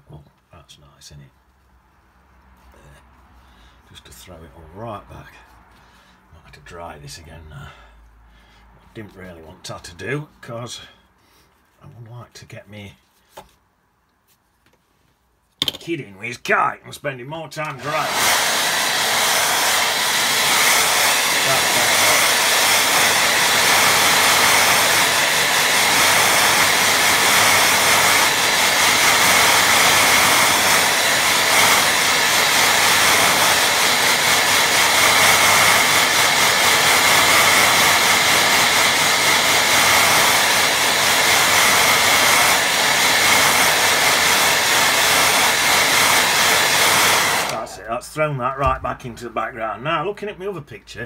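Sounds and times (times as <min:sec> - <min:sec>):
hair dryer blowing: 0:17.6 - 0:47.9.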